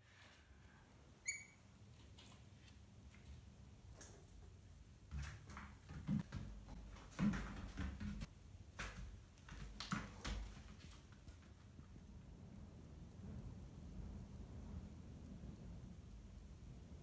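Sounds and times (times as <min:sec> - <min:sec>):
animals scrambling on hard floor: 0:05.1 - 0:11.9.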